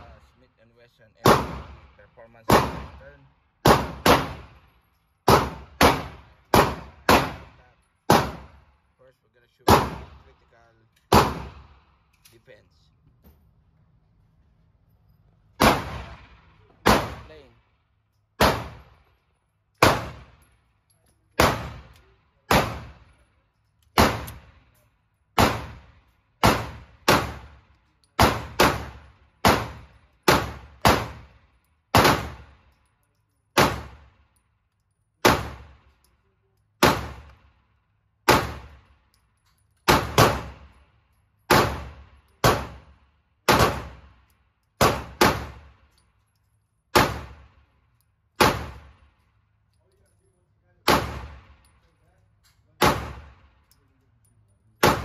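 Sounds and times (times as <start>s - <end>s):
pistol shots echoing: 1.2s - 3.0s, 3.6s - 4.6s, 5.2s - 8.7s, 9.6s - 10.2s, 11.1s - 11.9s, 15.6s - 17.3s, 18.4s - 19.1s, 19.8s - 20.4s, 21.4s - 23.2s, 24.0s - 24.7s, 25.3s - 32.6s, 33.6s - 34.2s, 35.2s - 35.9s, 36.8s - 37.5s, 38.2s - 39.0s, 39.9s - 40.8s, 41.5s - 44.2s, 44.8s - 45.8s, 46.9s - 47.7s, 48.4s - 49.2s, 50.8s - 51.7s, 52.8s - 53.6s, 54.8s - 55.0s.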